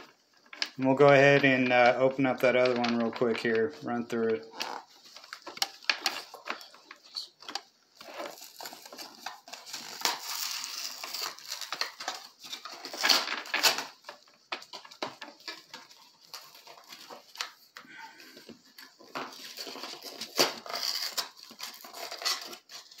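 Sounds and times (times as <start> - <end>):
packaging rustling and tearing: 0.0 - 23.0.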